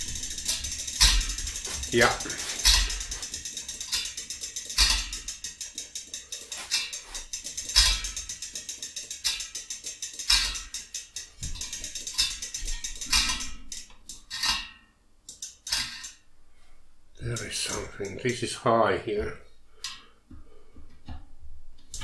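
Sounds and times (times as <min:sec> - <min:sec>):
bicycle freewheel ticking: 0:00.0 - 0:14.6, 0:15.3 - 0:16.2, 0:17.2 - 0:18.4.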